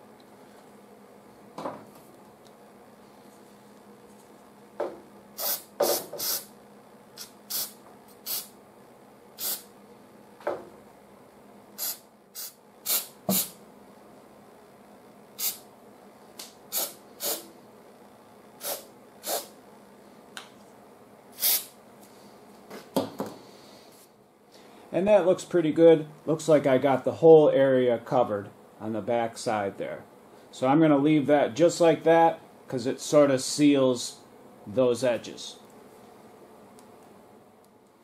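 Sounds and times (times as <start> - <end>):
aerosol spray hissing: 5.4 - 6.5, 7.2 - 8.5, 9.4 - 9.7, 11.8 - 13.6, 15.4 - 15.6, 16.7 - 17.5, 18.6 - 19.5, 21.4 - 21.7.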